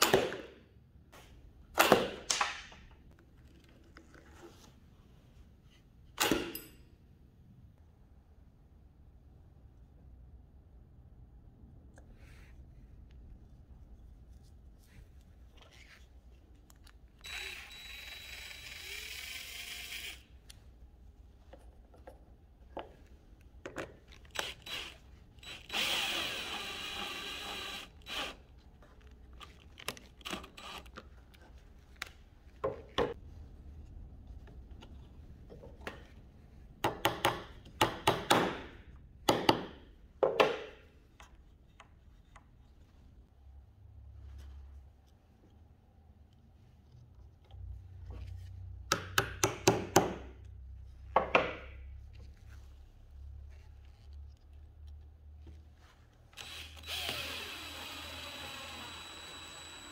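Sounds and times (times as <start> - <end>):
cordless screwdriver whine: 17.2 - 20.2, 24.4 - 28.4, 56.4 - 59.9.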